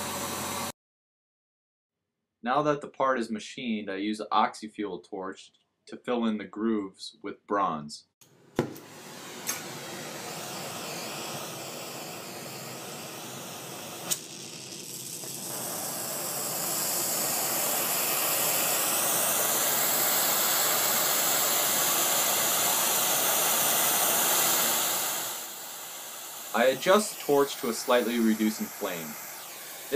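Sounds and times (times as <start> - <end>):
gas torch hissing: 0.0 - 0.7, 8.6 - 29.9
torch lighting pop: 8.6 - 12.4, 13.0 - 16.4.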